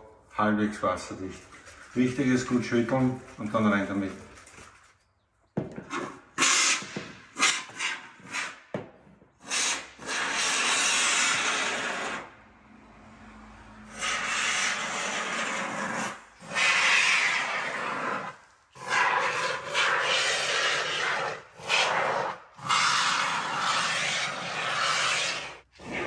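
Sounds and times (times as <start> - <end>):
aerosol foam can hissing: 9.4 - 12.2.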